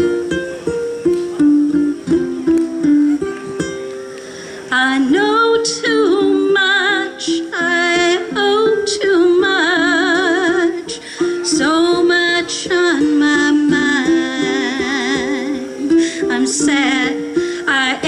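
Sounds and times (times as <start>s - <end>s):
ukulele playing: 0.0s - 18.0s
person singing with vibrato: 4.7s - 18.0s.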